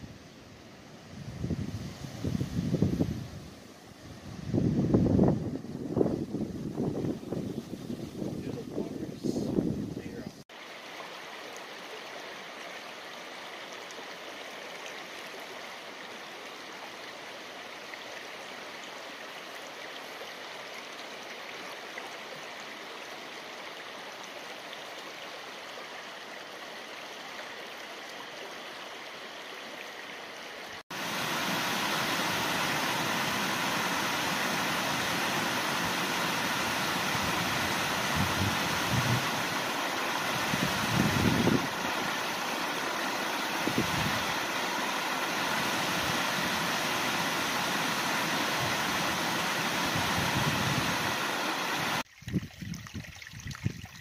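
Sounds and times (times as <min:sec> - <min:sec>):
creek flowing over stones: 0:05.3 - 0:54.0
mountain stream rushing: 0:10.4 - 0:52.1.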